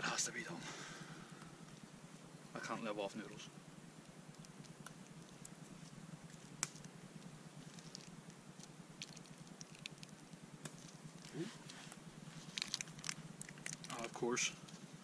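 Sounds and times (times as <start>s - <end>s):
low steady hum: 0.0s - 15.0s
faint clicks and crackles: 3.9s - 15.0s.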